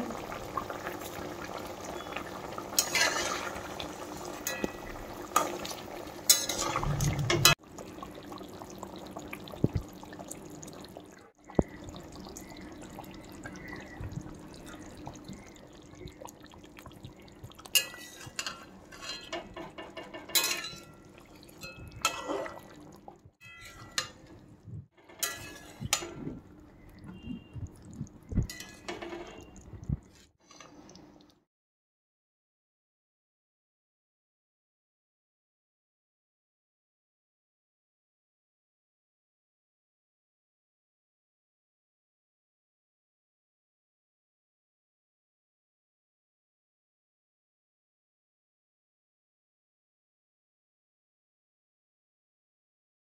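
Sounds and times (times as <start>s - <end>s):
gravy simmering: 0.0s - 31.4s
spatula scraping metal pan: 2.8s - 3.8s, 6.3s - 7.6s, 17.8s - 21.0s, 23.5s - 24.3s, 25.0s - 26.4s, 28.4s - 29.6s.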